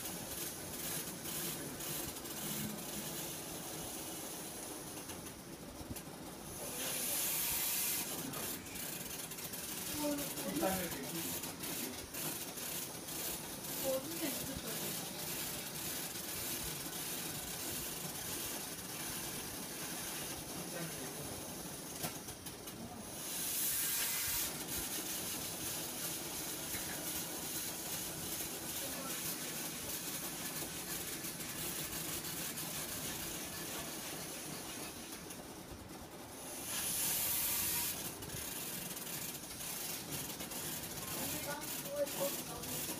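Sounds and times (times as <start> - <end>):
lab machinery hissing: 0.0 - 42.9
rush of hiss: 6.5 - 9.1, 23.1 - 29.8.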